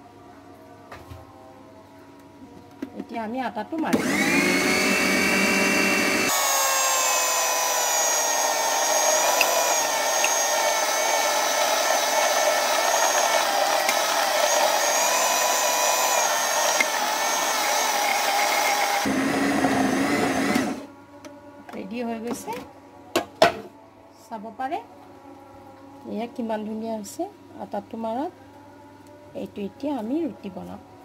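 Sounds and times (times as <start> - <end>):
food processor motor whining: 3.9 - 20.9.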